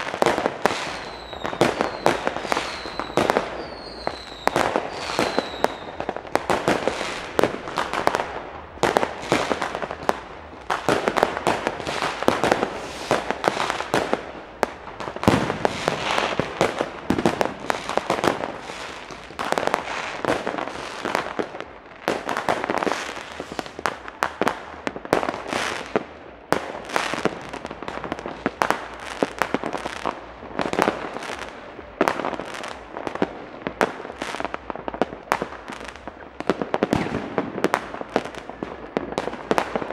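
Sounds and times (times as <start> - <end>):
fireworks and firecrackers banging: 0.0 - 39.9
falling whistle: 0.8 - 6.0.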